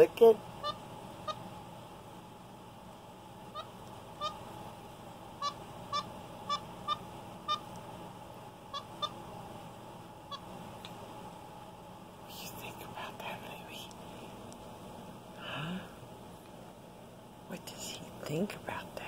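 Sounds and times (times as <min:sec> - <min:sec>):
monkey high-pitched peeps: 0:00.6 - 0:01.4, 0:03.5 - 0:04.4, 0:05.4 - 0:07.7, 0:08.7 - 0:09.2, 0:10.3 - 0:10.5.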